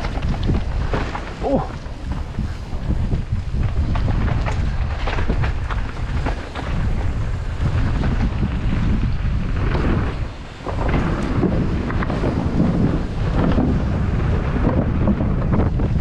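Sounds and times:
bike rattling knocks: 0:00.0 - 0:16.0
tyres rumbling over dirt and boards: 0:00.0 - 0:16.0
wind buffeting microphone: 0:00.0 - 0:16.0.

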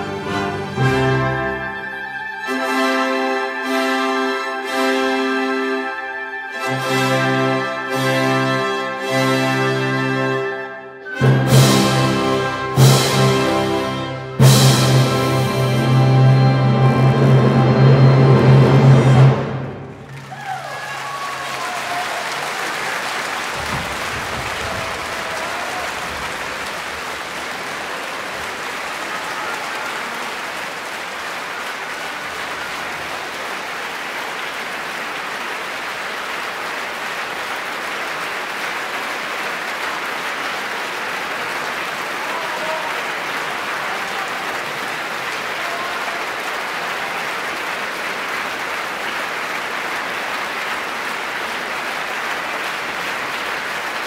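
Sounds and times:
large audience applauding: 0:18.4 - 0:54.0.

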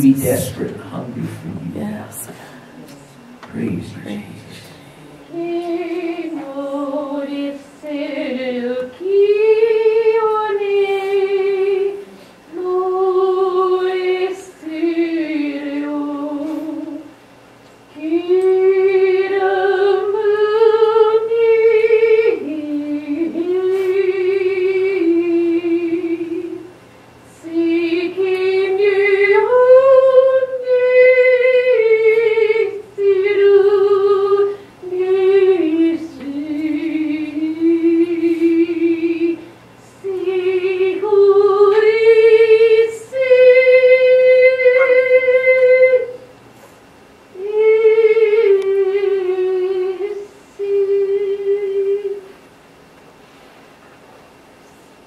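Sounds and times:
person singing unaccompanied: 0:27.4 - 0:46.2.

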